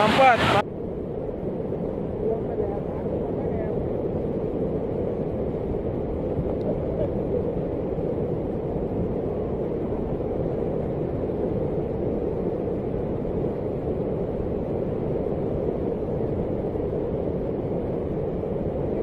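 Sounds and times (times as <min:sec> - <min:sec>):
floodwater rushing: 0:00.0 - 0:00.6.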